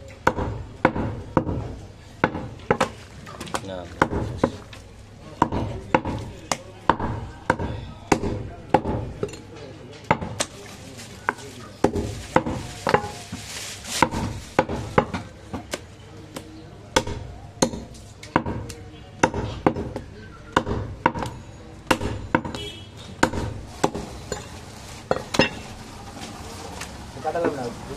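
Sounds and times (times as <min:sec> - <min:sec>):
meat cleaver chopping on wood: 0:00.2 - 0:03.0, 0:04.0 - 0:04.6, 0:05.4 - 0:09.2, 0:17.0 - 0:22.6, 0:23.2 - 0:24.1.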